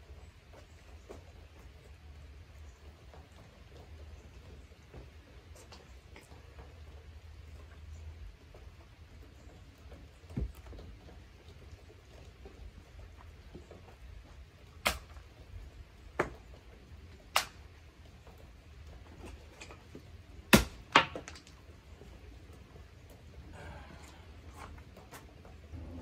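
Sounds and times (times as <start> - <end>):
wood splitting knocks: 20.5 - 21.5.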